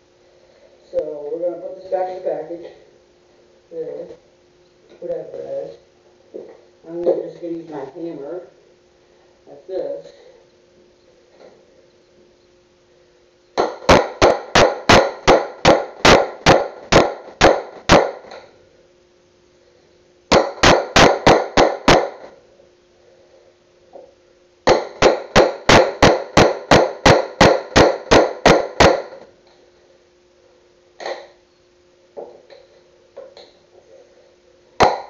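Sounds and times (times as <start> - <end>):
hammer striking a wood chisel: 13.6 - 18.4, 20.3 - 22.3, 24.7 - 29.2, 34.8 - 35.0.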